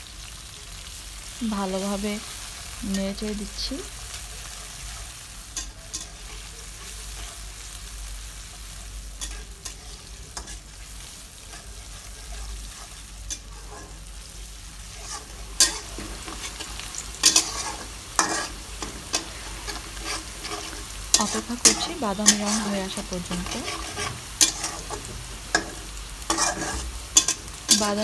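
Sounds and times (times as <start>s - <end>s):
onions sizzling in oil: 0.0s - 28.0s
metal spatula scraping wok: 4.5s - 7.7s, 9.2s - 28.0s.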